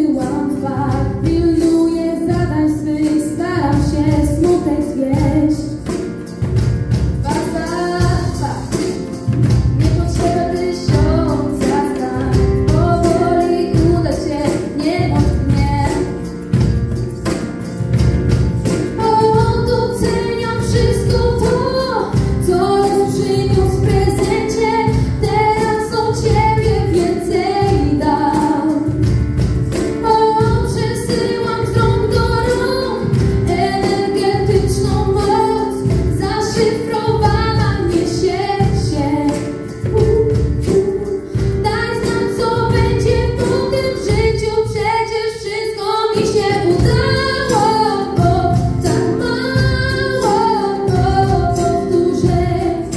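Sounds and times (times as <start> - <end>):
women singing: 0.0 - 5.9, 7.2 - 16.5, 18.9 - 29.2, 29.9 - 52.9
band playing: 3.4 - 44.8, 46.2 - 52.9.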